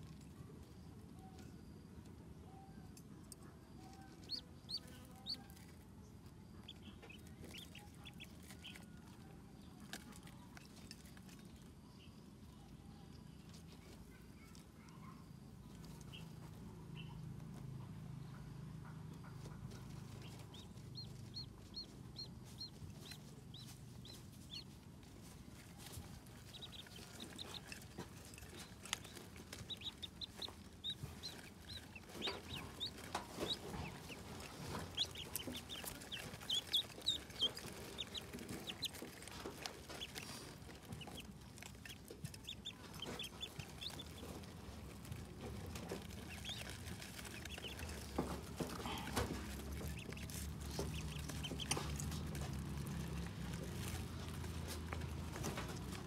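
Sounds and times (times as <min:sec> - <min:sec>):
pecking at feed dishes: 0:03.0 - 0:12.3, 0:15.8 - 0:56.0
ducklings peeping: 0:03.8 - 0:09.2, 0:15.7 - 0:17.2, 0:18.1 - 0:56.0.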